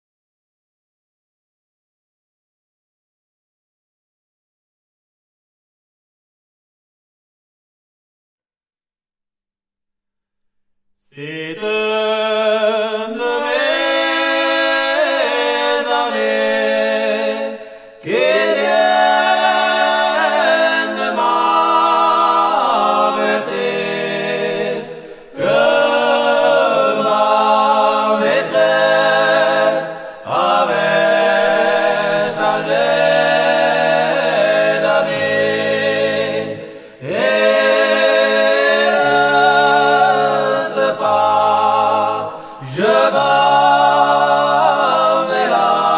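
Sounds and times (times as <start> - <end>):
men singing a cappella: 11.1 - 45.9.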